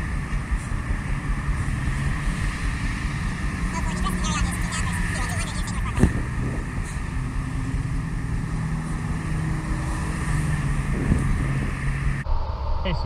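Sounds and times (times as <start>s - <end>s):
truck passing: 0.0s - 12.3s
highway traffic drone: 0.0s - 13.0s.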